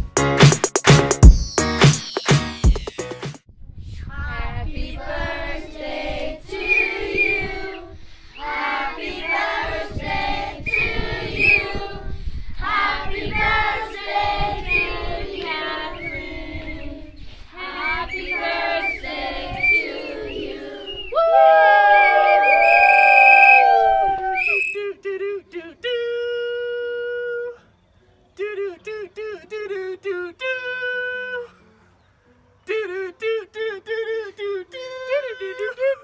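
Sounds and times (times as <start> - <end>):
children singing: 4.2 - 12.0, 12.7 - 21.0.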